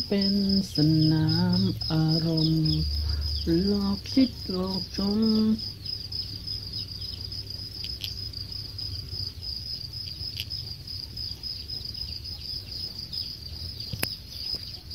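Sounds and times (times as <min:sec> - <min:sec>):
crickets chirping: 0:00.0 - 0:14.9
low rumble: 0:01.3 - 0:05.0.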